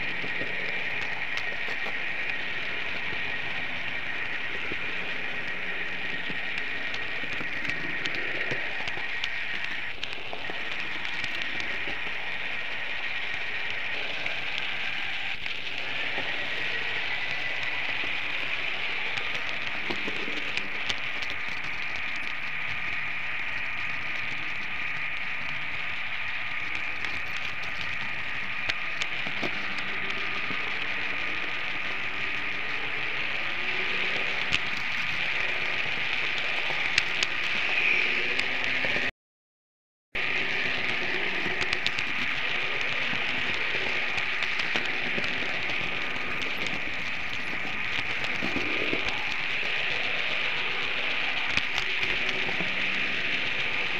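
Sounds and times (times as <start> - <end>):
model train wheels rattling on rails: 0.0 - 39.0, 40.2 - 53.9
faint motor whine: 0.0 - 39.1
wheels clicking over rails: 40.2 - 53.9.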